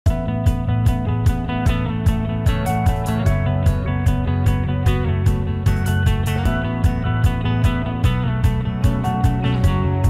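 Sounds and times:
background music with drum beat: 0.1 - 10.0.

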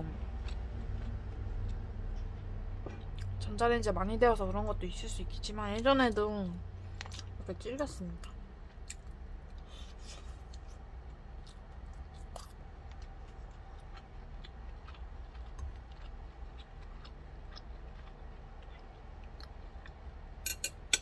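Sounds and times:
person chewing food: 0.0 - 3.4, 6.8 - 7.4, 8.2 - 20.9
chopsticks clinking on a plate: 20.4 - 21.0.

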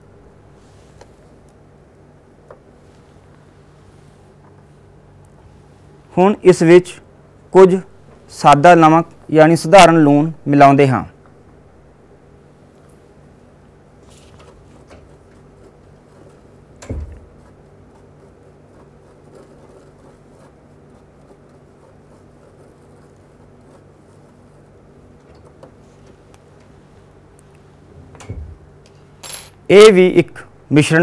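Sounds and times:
low steady hum: 0.0 - 31.0
spatula scraping crystals on paper: 17.3 - 25.2.

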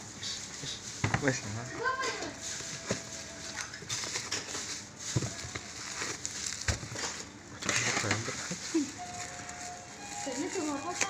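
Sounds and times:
packaging crinkling and rustling: 1.2 - 11.0.

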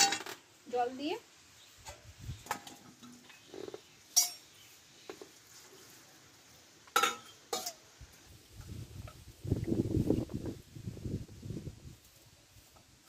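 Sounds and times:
steel bowls clinking: 4.1 - 4.5, 6.9 - 7.9.

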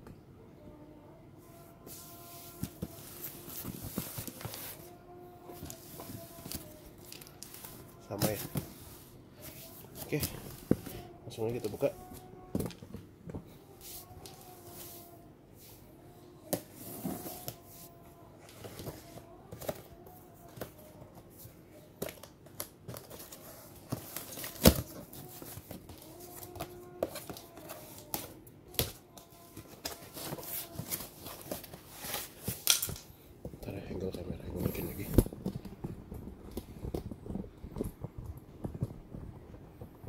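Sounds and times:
cardboard rustling: 1.8 - 12.8, 21.4 - 32.9.

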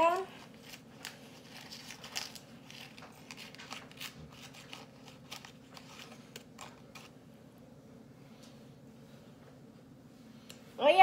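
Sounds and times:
paper pouch crinkling: 0.0 - 7.2.

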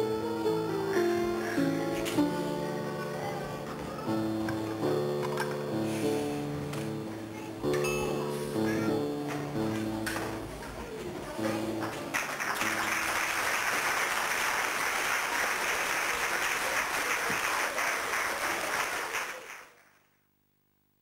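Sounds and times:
song ending: 0.0 - 10.6, 11.4 - 14.3
audience applauding: 11.8 - 19.9.

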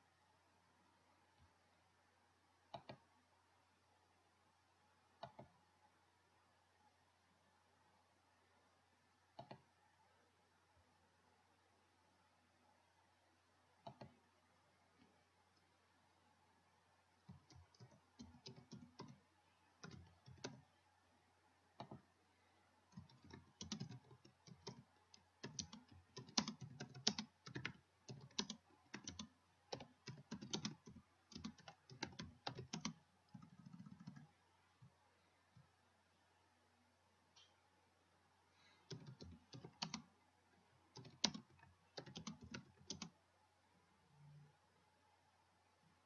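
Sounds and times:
faint keyboard typing: 2.6 - 3.2, 5.1 - 5.8, 9.2 - 9.9, 13.7 - 15.8, 16.9 - 20.9, 21.6 - 22.2, 22.8 - 35.8, 38.6 - 43.3.

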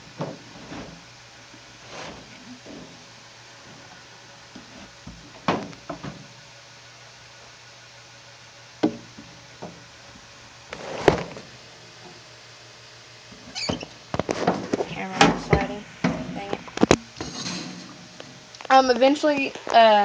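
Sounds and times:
scraping rustle: 0.3 - 1.1, 1.8 - 4.0, 10.7 - 11.5, 13.3 - 15.1.

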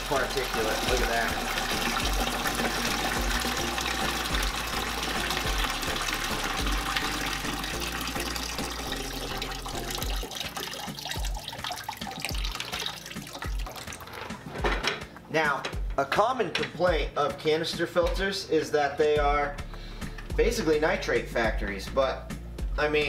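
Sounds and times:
water pouring into plastic bucket: 0.0 - 14.4.

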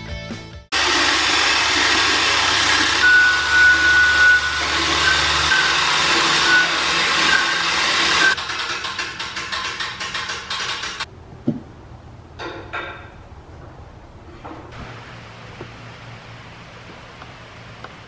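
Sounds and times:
high whine: 0.8 - 8.4
material lift mechanical whirring: 0.8 - 8.4.

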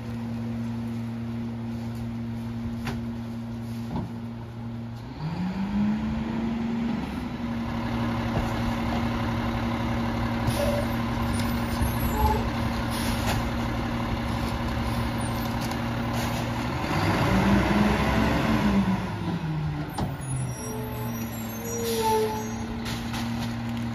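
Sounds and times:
garbage truck engine running: 6.1 - 23.9.

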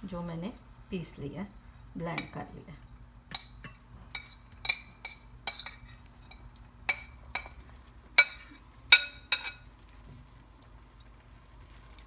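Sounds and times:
metal spoon clinking on plate: 3.3 - 7.6, 8.2 - 9.6.

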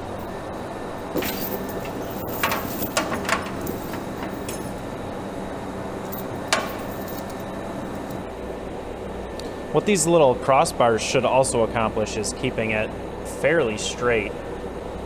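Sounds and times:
low hum: 0.0 - 9.8
metal chain clinking and rattling: 1.2 - 4.8, 6.1 - 8.2.

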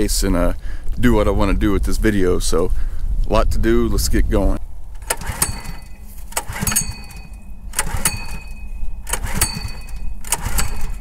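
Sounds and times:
small engine cranking: 5.0 - 11.0.

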